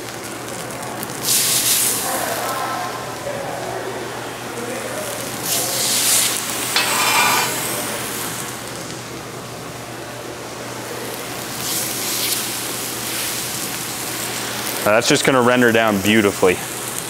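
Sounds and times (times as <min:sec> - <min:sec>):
steaks sizzling on a griddle: 0:01.2 - 0:02.6, 0:06.8 - 0:07.6, 0:11.6 - 0:14.8.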